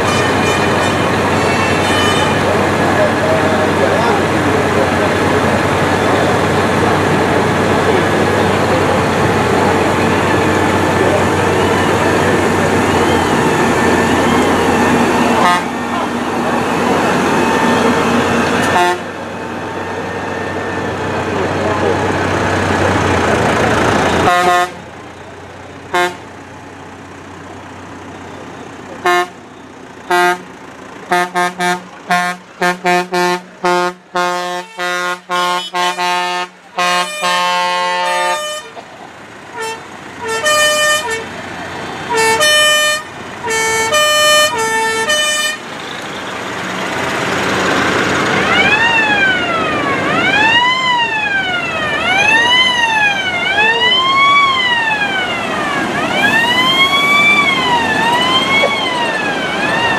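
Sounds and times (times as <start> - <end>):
vehicle horns honking: 0.0 - 2.6, 11.2 - 16.3, 17.4 - 19.1, 24.2 - 24.8, 25.9 - 26.2, 29.0 - 29.4, 30.0 - 30.5, 31.1 - 38.8, 39.5 - 41.3, 42.1 - 46.4
siren wailing: 8.7 - 21.5, 48.3 - 59.9.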